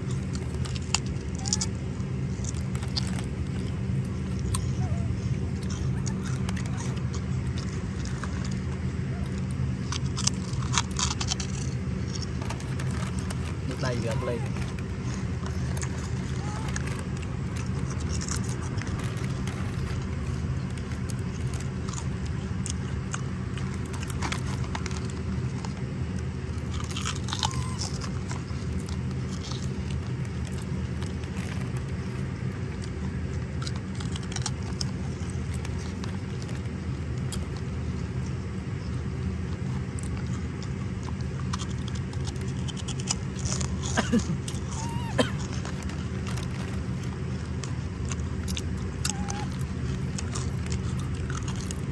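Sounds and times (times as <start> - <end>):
monkey crunching snack: 0.0 - 51.9
steady low hum: 0.0 - 51.9.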